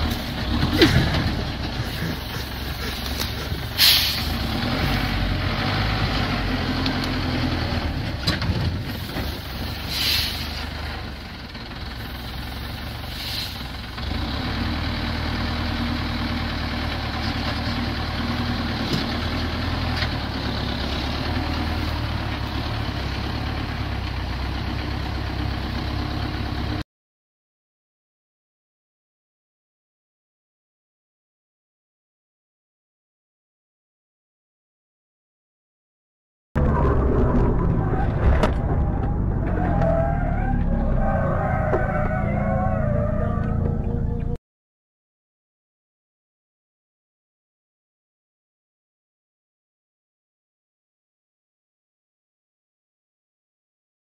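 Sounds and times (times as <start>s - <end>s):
truck engine running: 0.0s - 26.8s, 36.6s - 44.4s
air brake hisses: 1.9s - 4.4s, 9.0s - 10.6s, 13.1s - 13.7s.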